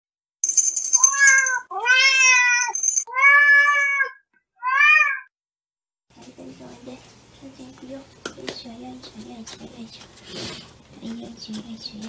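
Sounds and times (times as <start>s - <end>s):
cat meowing: 1.1s - 5.3s.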